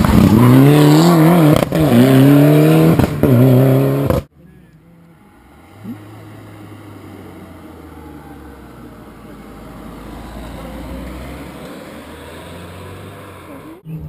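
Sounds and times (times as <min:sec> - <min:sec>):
van engine passing: 0:00.0 - 0:14.0.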